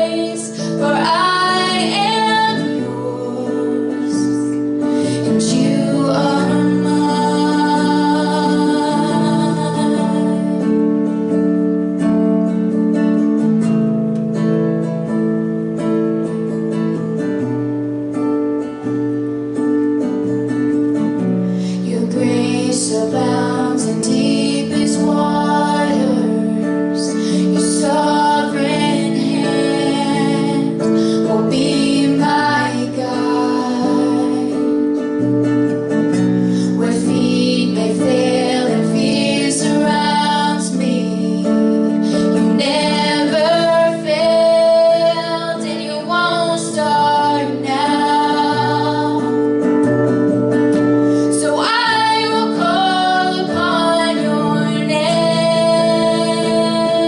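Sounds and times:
woman singing: 0:00.0 - 0:11.4, 0:21.6 - 0:35.3, 0:35.9 - 0:57.0
acoustic guitar: 0:00.0 - 0:57.0.

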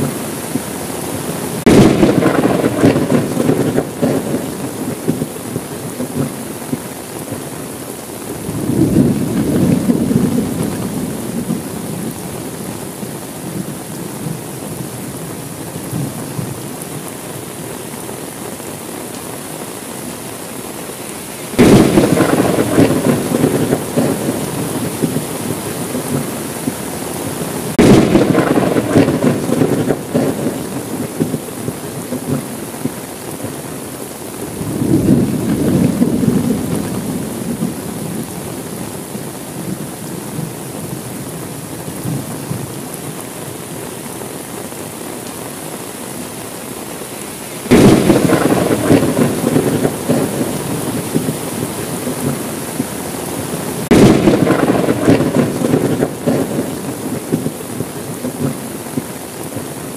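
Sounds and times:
steady rain: 0:00.0 - 0:59.9
sharp thunderclaps: 0:01.6 - 0:05.3, 0:08.5 - 0:11.6, 0:21.6 - 0:26.4, 0:27.7 - 0:31.4, 0:34.6 - 0:37.8, 0:47.7 - 0:51.4, 0:53.8 - 0:57.6
soft roll of thunder: 0:01.6 - 0:06.9, 0:08.5 - 0:12.2, 0:21.6 - 0:26.8, 0:27.7 - 0:33.6, 0:34.6 - 0:38.3, 0:47.7 - 0:52.9, 0:53.8 - 0:59.6.

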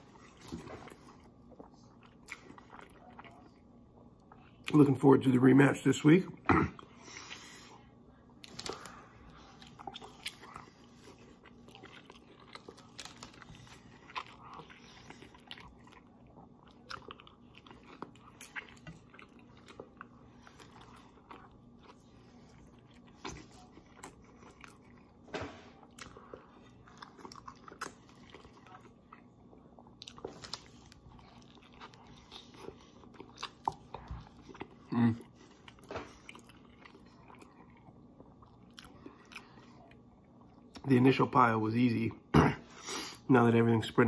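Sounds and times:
person chewing: 0:00.0 - 0:04.7, 0:08.3 - 0:40.8.

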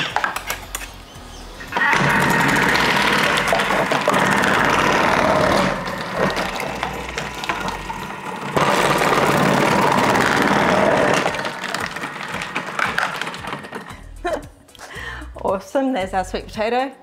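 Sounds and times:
food processor motor whirring: 0:01.7 - 0:14.2.

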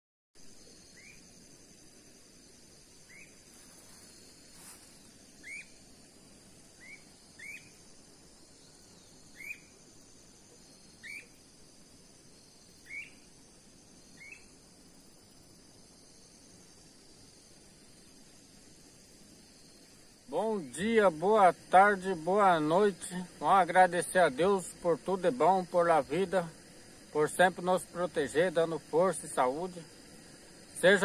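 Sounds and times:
high-pitched insect drone: 0:00.4 - 0:31.0
short rising animal chirps: 0:05.4 - 0:05.7, 0:06.8 - 0:07.8.

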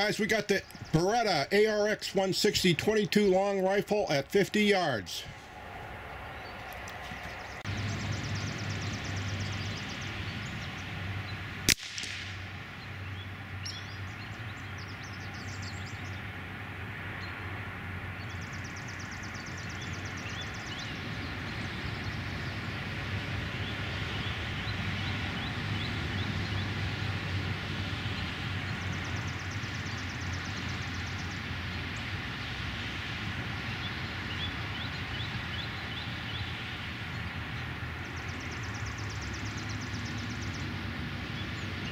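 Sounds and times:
rifle shot: 0:11.7 - 0:12.5.

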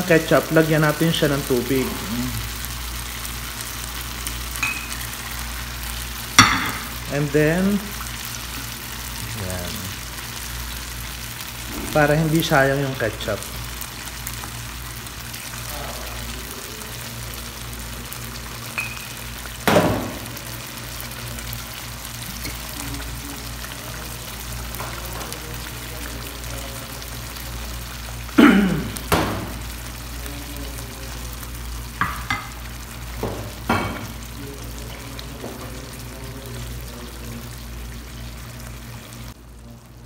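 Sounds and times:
sauce sizzling in a pan: 0:00.0 - 0:40.0
spoon knocking against pan: 0:06.4 - 0:06.9.

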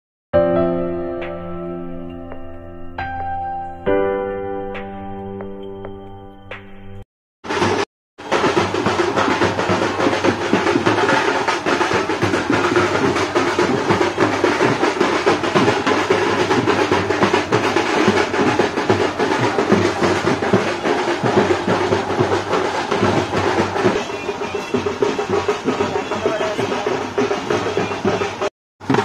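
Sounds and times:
fast drum strokes: 0:07.4 - 0:29.0
loud band playing: 0:07.4 - 0:29.0.

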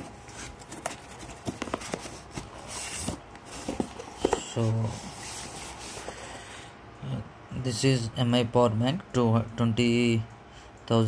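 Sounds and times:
cardboard rustle: 0:00.0 - 0:06.3
cardboard taps and knocks: 0:00.8 - 0:02.5.

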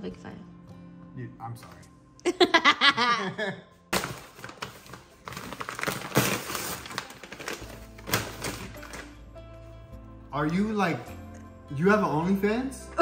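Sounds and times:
plastic bag rustling and crinkling: 0:04.0 - 0:09.2.

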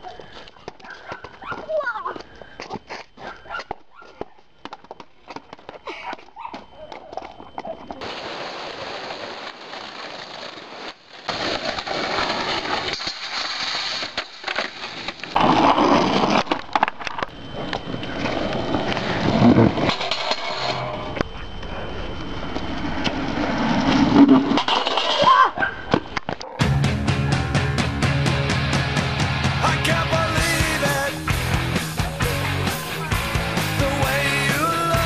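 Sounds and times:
skateboard rolling on pavement: 0:13.9 - 0:25.2.

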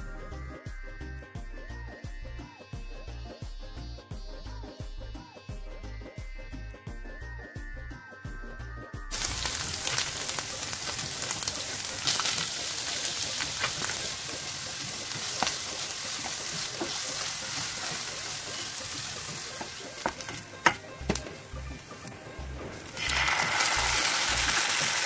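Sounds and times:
onions sizzling in oil: 0:09.1 - 0:25.0
utensil clicking against pan: 0:10.8 - 0:21.4.

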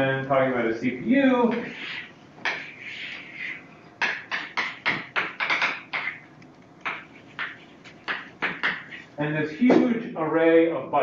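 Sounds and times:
chalk taps on blackboard: 0:01.5 - 0:03.2, 0:04.0 - 0:06.2, 0:06.8 - 0:09.1
chalk scraping on blackboard: 0:01.5 - 0:03.7, 0:06.8 - 0:09.2.

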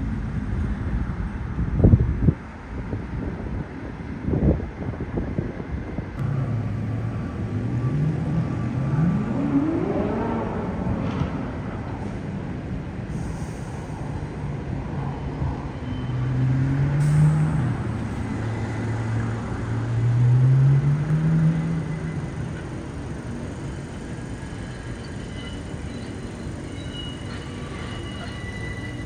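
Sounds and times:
vehicle engine accelerating past: 0:06.2 - 0:11.5.

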